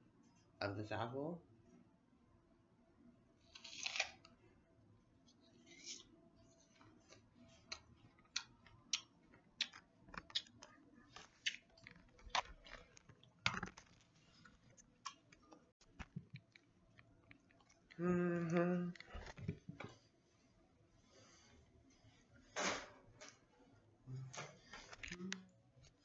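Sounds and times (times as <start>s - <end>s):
apple crunching: 3.5s - 4.3s, 7.1s - 10.6s, 11.2s - 16.6s.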